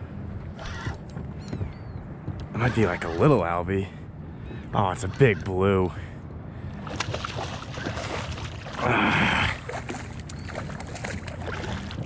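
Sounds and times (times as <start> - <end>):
water sloshing and splashing: 6.7 - 12.0.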